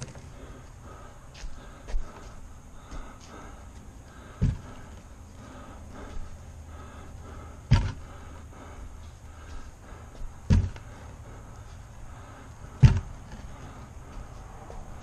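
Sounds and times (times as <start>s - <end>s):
metal fuel tank thumping on wood: 12.8s - 13.1s.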